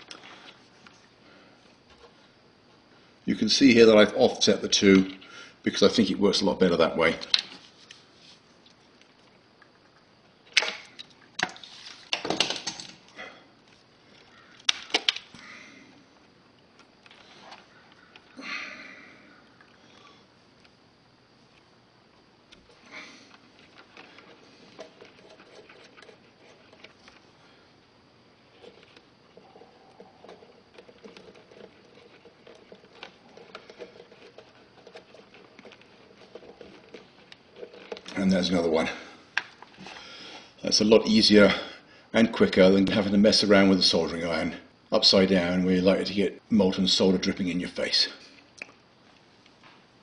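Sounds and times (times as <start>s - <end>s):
small clicks and scratching: 22.5s - 27.3s, 28.4s - 38.6s.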